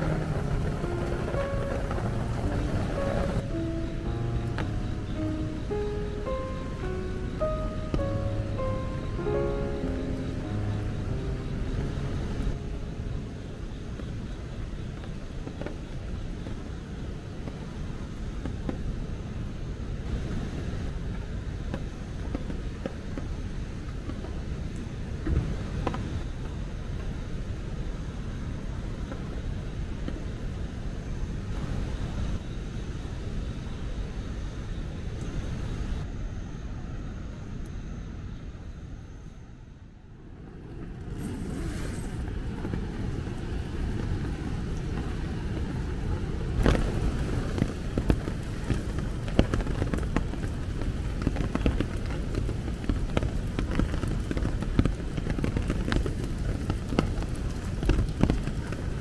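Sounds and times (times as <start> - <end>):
heavy rain falling: 0.0 - 27.2, 40.4 - 59.0.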